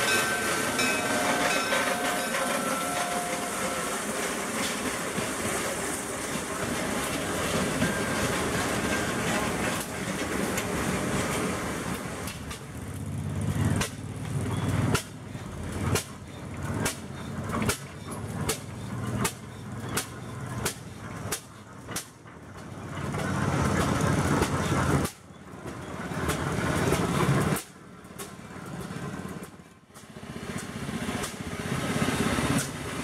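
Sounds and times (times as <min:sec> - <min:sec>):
train rumbling past: 0:00.0 - 0:33.0
tractor engine exhaust beats: 0:12.5 - 0:30.2.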